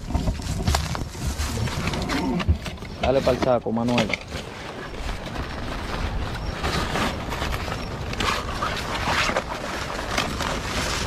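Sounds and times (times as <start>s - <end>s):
crinkling: 0.0s - 11.0s
cloth sack rustling: 3.1s - 11.0s.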